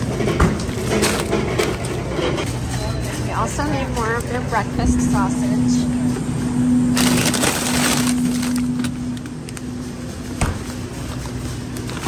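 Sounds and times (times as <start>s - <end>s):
steady low hum: 0.0s - 12.0s
plastic packaging crinkling: 6.9s - 9.8s, 11.0s - 12.0s.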